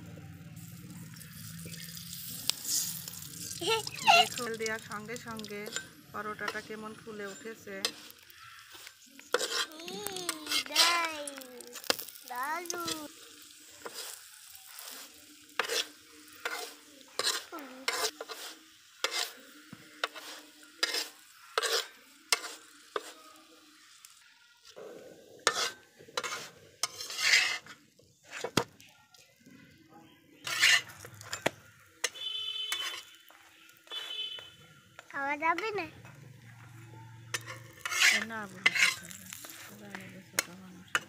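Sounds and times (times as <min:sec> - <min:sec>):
oil sizzling: 0:00.0 - 0:29.4, 0:30.4 - 0:41.0
metal spatula scraping iron pan: 0:05.2 - 0:11.0, 0:14.7 - 0:23.2, 0:25.4 - 0:28.7, 0:30.4 - 0:33.2, 0:37.3 - 0:41.0.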